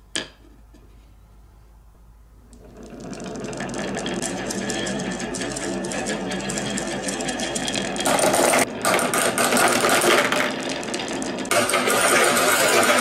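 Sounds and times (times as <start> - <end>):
marbles rattling on wooden track: 2.6 - 13.0.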